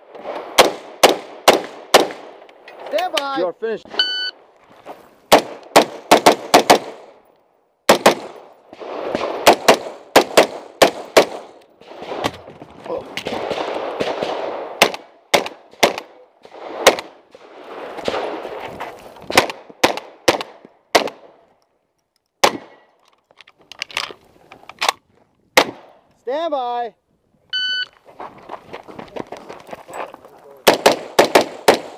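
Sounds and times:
rifle gunshots: 0:00.2 - 0:02.4, 0:05.3 - 0:07.2, 0:07.9 - 0:12.4, 0:13.2 - 0:18.6, 0:19.3 - 0:21.4, 0:22.4 - 0:22.8, 0:25.6 - 0:26.0, 0:30.6 - 0:31.9
handgun shots: 0:30.7 - 0:31.9.

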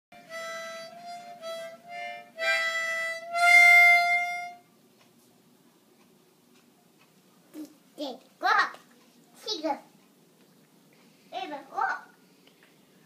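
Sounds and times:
harmonica blown by child: 0:00.2 - 0:04.7.

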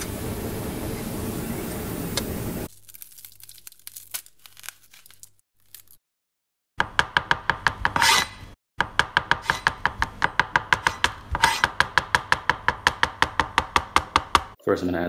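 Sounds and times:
knife chopping on glass plate: 0:06.8 - 0:14.5
knife scraping on plate: 0:07.9 - 0:08.5, 0:09.4 - 0:09.8, 0:10.8 - 0:11.7.

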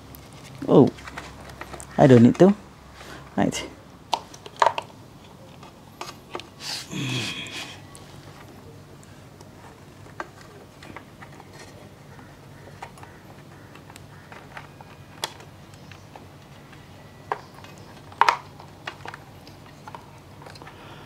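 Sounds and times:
plastic parts clicking and tapping: 0:04.1 - 0:06.5, 0:09.4 - 0:20.8
plastic parts clattering: 0:04.3 - 0:04.9.

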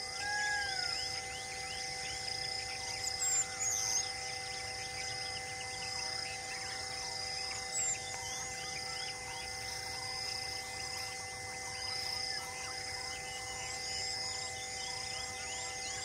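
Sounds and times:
insects trilling: 0:00.0 - 0:16.0
steady drone of held tones: 0:00.0 - 0:16.0.

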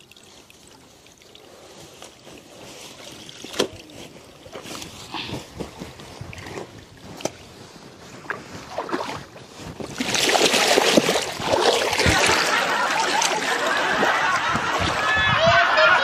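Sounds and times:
water splashing and dripping: 0:00.0 - 0:05.1, 0:06.0 - 0:15.2
cloth thrashed through water: 0:08.0 - 0:15.1.

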